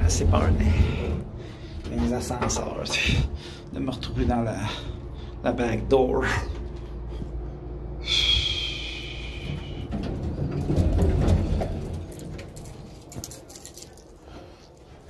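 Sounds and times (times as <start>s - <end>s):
keys jingling and clicking: 11.8s - 14.9s.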